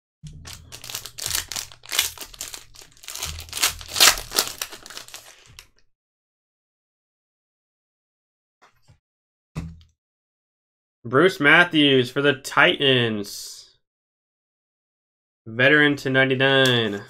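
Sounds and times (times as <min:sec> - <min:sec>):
foil wrapper crinkling and tearing: 0:00.4 - 0:05.7.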